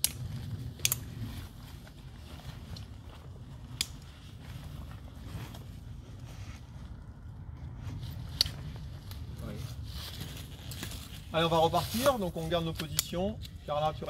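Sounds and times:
low steady rumble: 0.0s - 14.0s
buckles snapping shut: 0.8s - 1.0s.

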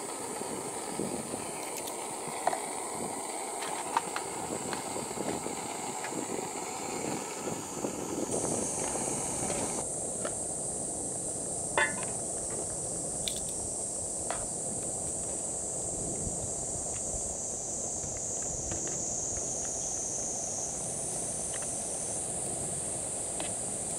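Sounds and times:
gas stove burning with hiss: 0.0s - 23.9s
metal lid clinking: 11.8s - 12.2s.

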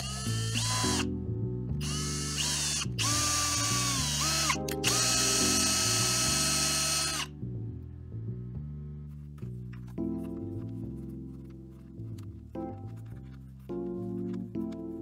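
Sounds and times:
background music: 0.0s - 15.0s
router spindle high whine: 1.8s - 7.3s.

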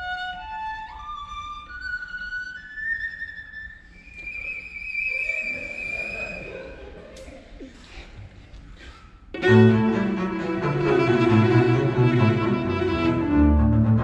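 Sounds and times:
bowed cello line: 9.4s - 14.0s
lower bowed double bass: 9.4s - 14.0s.

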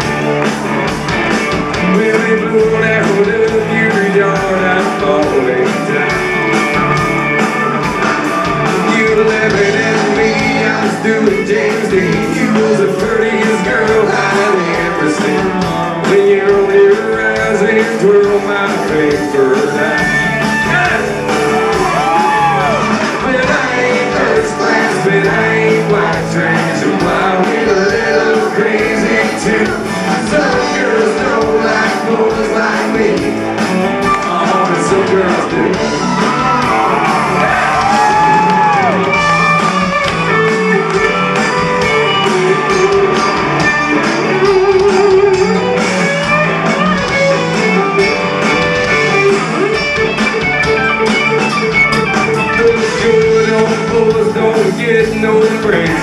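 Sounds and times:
country-rock band playing: 0.0s - 56.0s
man singing: 1.6s - 6.7s, 8.6s - 38.9s, 52.4s - 56.0s.

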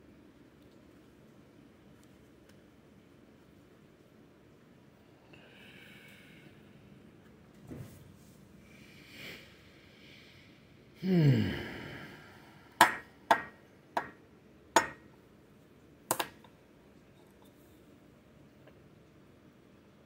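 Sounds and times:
man sighing: 11.0s - 12.8s.

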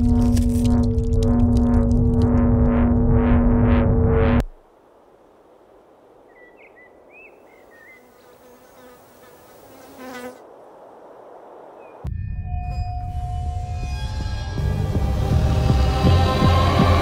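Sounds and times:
open-field ambience: 0.0s - 17.0s
soft bird chirps: 6.3s - 9.6s
fly buzzing: 7.9s - 10.4s
loud music: 14.6s - 17.0s.

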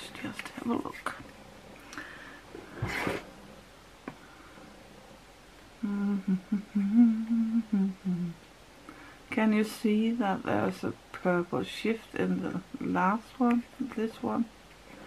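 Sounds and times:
woman humming: 5.8s - 8.4s.

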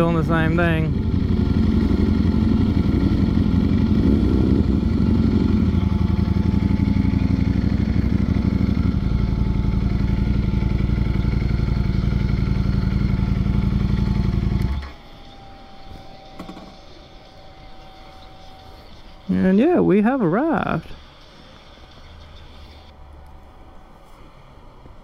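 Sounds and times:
motorcycle engine running at low revs: 0.0s - 23.3s.

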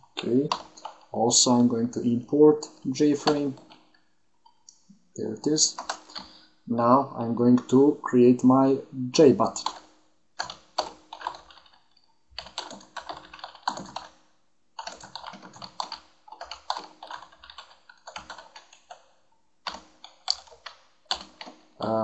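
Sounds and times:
keyboard typing clicks: 0.2s - 1.1s, 3.1s - 3.9s, 5.6s - 6.4s, 9.5s - 11.8s, 12.4s - 14.2s, 14.8s - 19.1s, 19.7s - 21.6s.

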